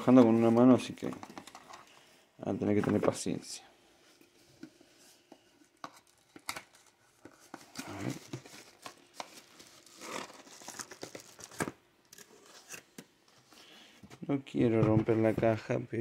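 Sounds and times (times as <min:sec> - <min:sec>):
crinkles: 0:05.5 - 0:12.9
packaging rustling: 0:05.6 - 0:12.8.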